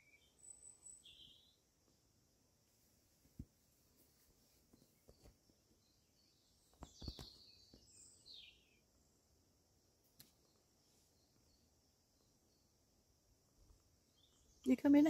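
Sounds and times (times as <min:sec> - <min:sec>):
high bird chirps: 0:06.7 - 0:08.7.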